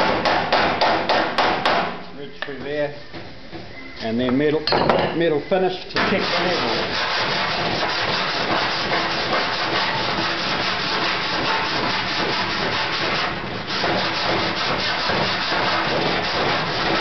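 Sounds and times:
file scraping sheet metal: 6.0s - 17.0s.

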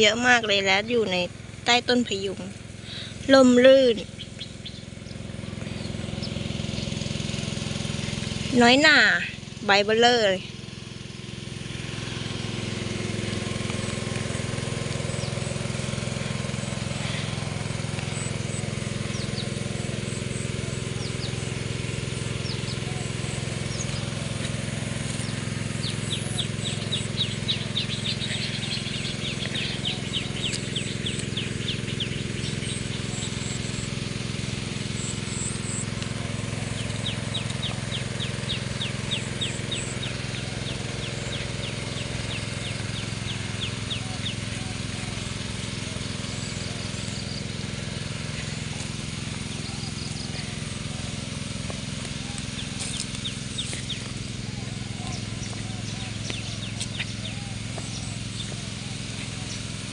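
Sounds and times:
low motor hum: 0.0s - 59.9s
water hissing from spray hoses: 10.5s - 59.9s.

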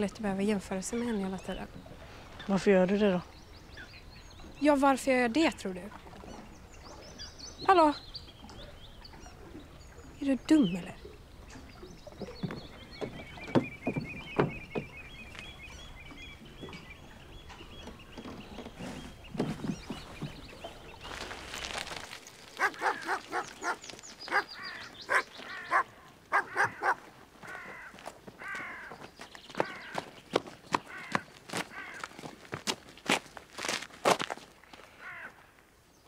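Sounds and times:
bird trilling: 22.4s - 28.9s
crow-like caws: 24.6s - 29.0s, 29.6s - 30.1s, 30.9s - 32.3s, 34.9s - 35.4s.

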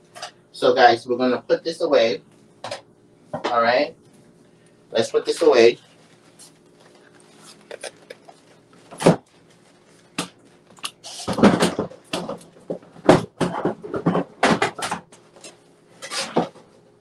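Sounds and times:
cupboard doors and items knocking: 11.3s - 15.1s.

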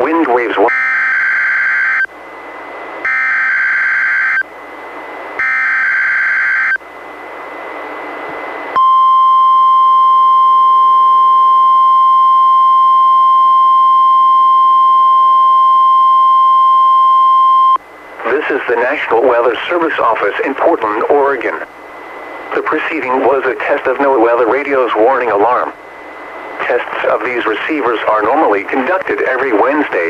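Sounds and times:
radio hiss: 0.0s - 0.7s, 17.8s - 30.0s
steady alarm tone: 0.6s - 2.1s, 3.0s - 4.5s, 5.4s - 6.8s, 8.4s - 17.8s.

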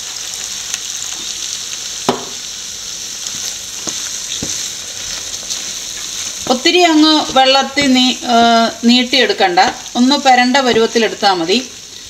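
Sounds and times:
food sizzling in a frying pan: 0.0s - 12.0s
wooden spatula knocking on pan: 2.1s - 2.4s, 3.8s - 4.6s, 7.2s - 8.1s.

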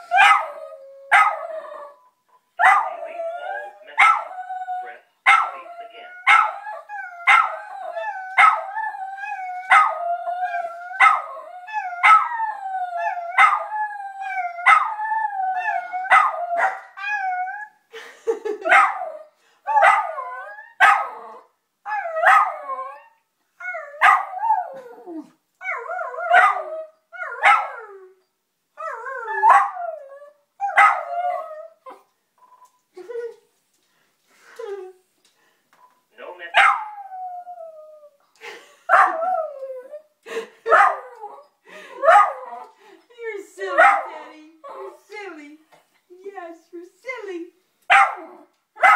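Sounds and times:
dog howling and yelping: 3.0s - 17.8s, 36.6s - 38.2s.

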